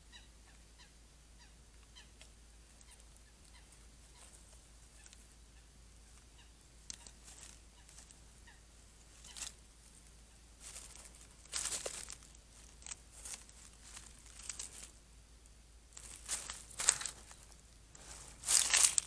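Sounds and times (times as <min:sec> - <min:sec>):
animal rustling through vegetation: 0:06.0 - 0:15.0, 0:15.9 - 0:19.0.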